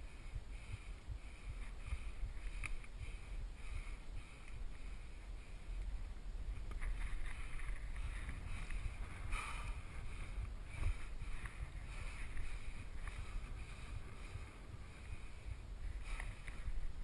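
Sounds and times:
faint pulsing hiss: 0:00.0 - 0:17.0
wind buffeting microphone: 0:00.0 - 0:17.0.

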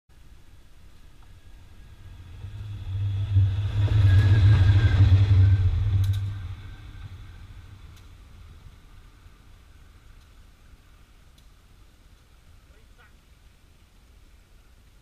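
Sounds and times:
diesel locomotive passing: 0:00.5 - 0:11.2.

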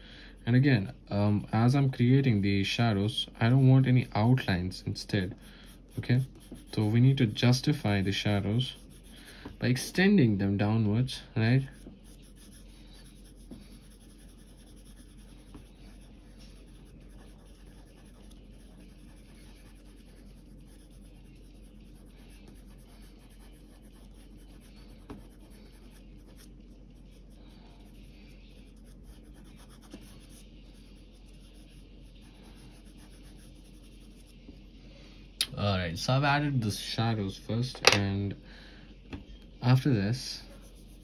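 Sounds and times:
pencil scratching on paper: 0:05.2 - 0:09.9, 0:11.5 - 0:34.5, 0:40.4 - 0:41.0.

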